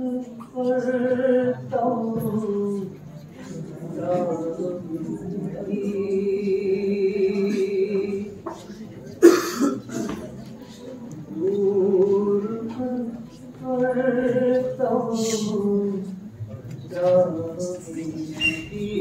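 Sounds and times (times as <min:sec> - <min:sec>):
man reciting unaccompanied: 0:00.0 - 0:08.4, 0:11.3 - 0:19.0
loud cough: 0:09.2 - 0:10.3.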